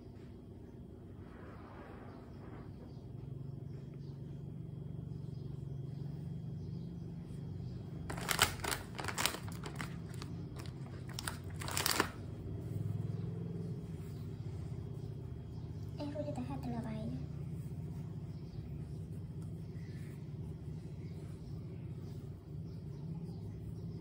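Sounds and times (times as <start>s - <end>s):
steady low hum: 0.0s - 24.0s
paper tissues crinkling: 8.1s - 12.2s.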